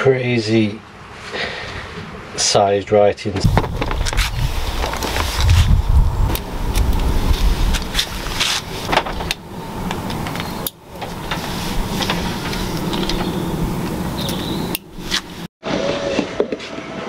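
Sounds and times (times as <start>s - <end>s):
steady background noise: 0.0s - 17.0s
electrical cable rustling and clicking: 3.5s - 15.5s.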